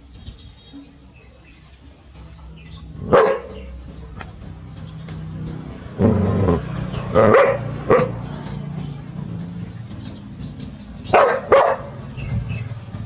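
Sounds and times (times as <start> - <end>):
dog barking: 3.0 - 3.7, 7.2 - 8.2, 11.1 - 12.0.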